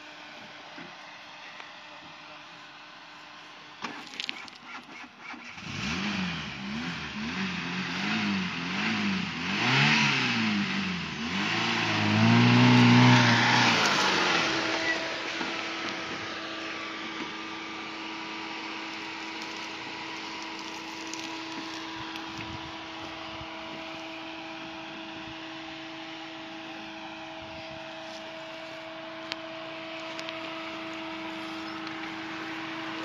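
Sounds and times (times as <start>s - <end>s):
off-road vehicle engine humming: 0.0s - 33.0s.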